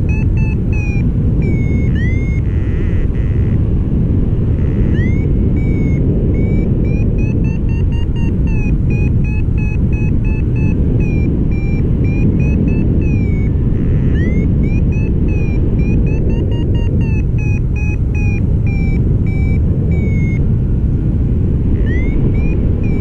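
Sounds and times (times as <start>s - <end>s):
variometer beeping: 0.0s - 23.0s
wind rumble on microphone: 0.0s - 23.0s.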